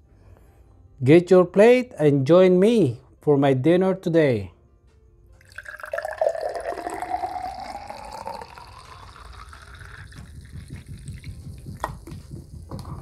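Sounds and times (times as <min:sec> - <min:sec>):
tea pouring into glass: 0:05.4 - 0:12.1.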